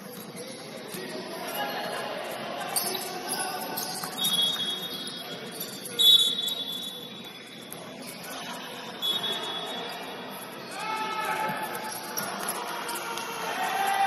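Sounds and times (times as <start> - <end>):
sneakers squeaking on court: 2.8 - 8.3
players shouting: 10.6 - 14.0.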